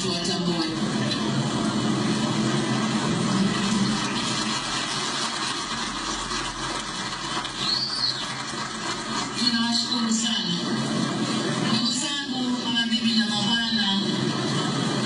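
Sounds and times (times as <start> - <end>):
crowd applauding: 2.6 - 9.4.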